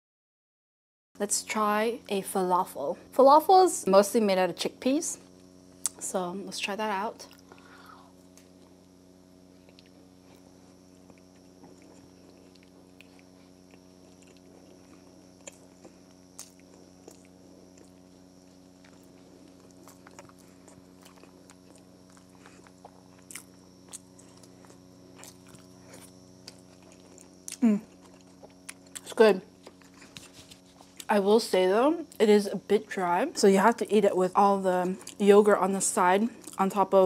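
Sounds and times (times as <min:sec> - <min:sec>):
faint steady hum: 0:01.2 - 0:37.0
close chewing: 0:09.6 - 0:31.1, 0:36.4 - 0:36.7.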